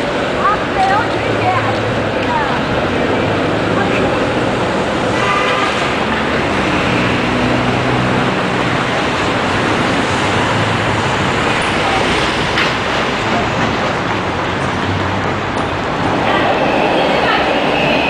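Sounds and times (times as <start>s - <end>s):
city street traffic: 0.0s - 18.0s.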